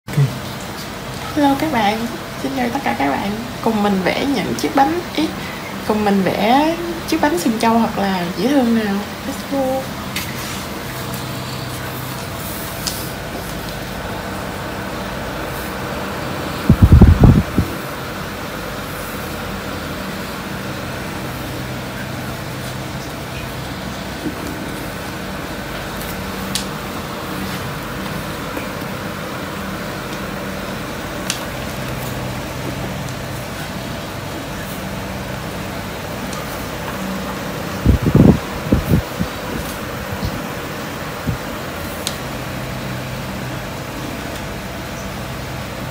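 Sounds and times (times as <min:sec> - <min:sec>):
fan machine hiss and hum: 0:00.1 - 0:45.9
loud low thumps: 0:16.7 - 0:17.8.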